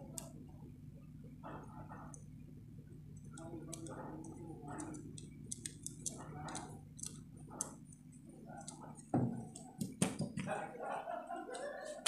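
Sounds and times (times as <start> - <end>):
faint regular ticking: 3.1 - 10.0.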